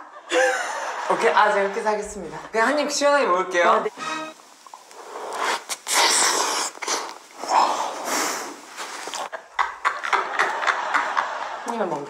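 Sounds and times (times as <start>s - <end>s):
breathy mouth noises: 4.6s - 9.3s.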